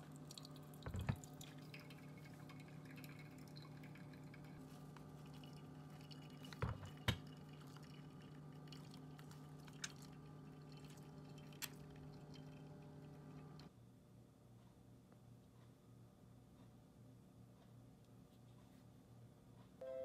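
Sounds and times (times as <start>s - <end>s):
coffee dripping into glass carafe: 0.0s - 13.6s.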